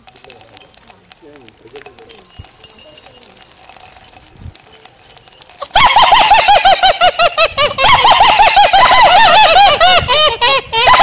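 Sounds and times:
small bells jingling: 0:00.0 - 0:08.7.

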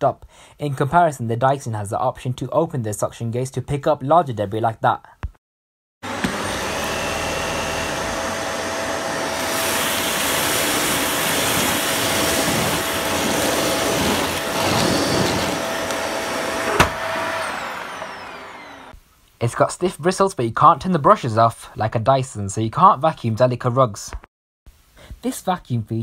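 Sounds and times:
motor winding down: 0:06.0 - 0:19.0
vacuum cleaner whine: 0:06.0 - 0:19.0
vacuum sucking up debris: 0:06.1 - 0:18.9.

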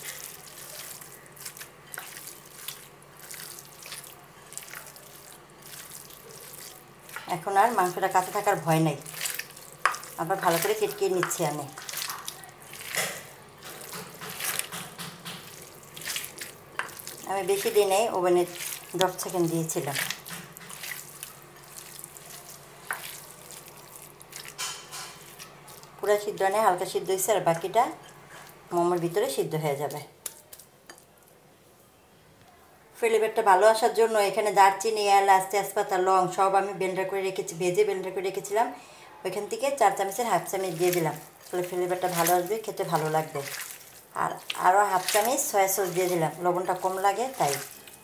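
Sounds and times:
hand squelching minced meat: 0:00.0 - 0:26.8, 0:40.1 - 0:48.0.

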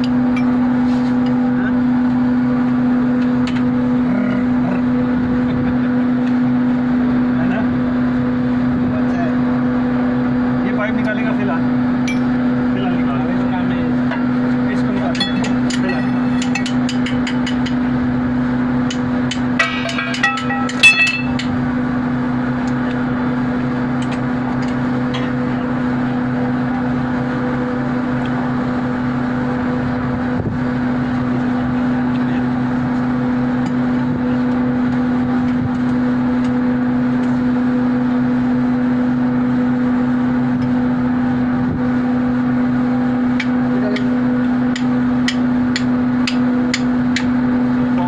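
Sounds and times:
machinery humming: 0:00.0 - 0:48.0
ratchet wrench clinking on metal: 0:19.6 - 0:21.5.

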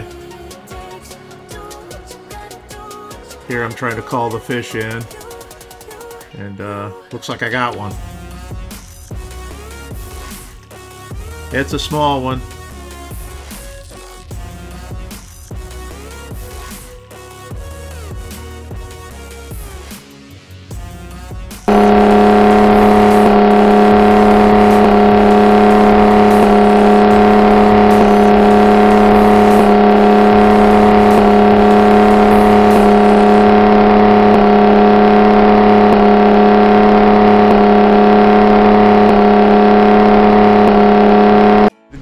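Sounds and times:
outboard motor running: 0:21.7 - 0:41.7.

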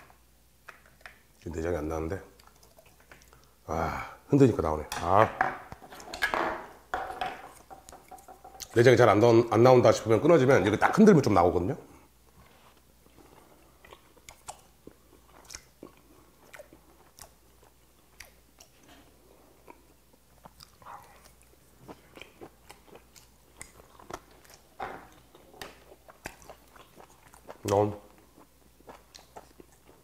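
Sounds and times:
man chewing wet mouth clicks: 0:02.4 - 0:03.6, 0:13.0 - 0:30.0.

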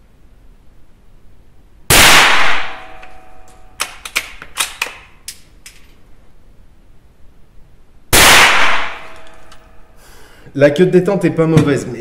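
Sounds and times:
rifle shot: 0:01.9 - 0:04.8, 0:08.1 - 0:09.5.

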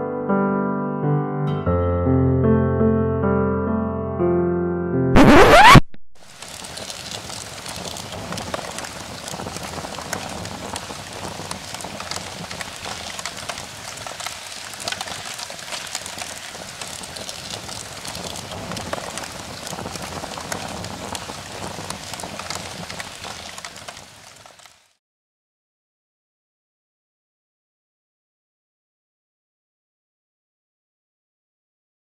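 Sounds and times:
rain-like patter: 0:05.2 - 0:25.0.

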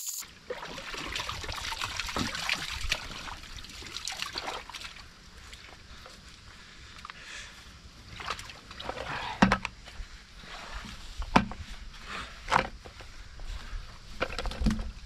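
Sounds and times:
water sloshing and splashing: 0:00.3 - 0:06.0, 0:08.0 - 0:09.1.

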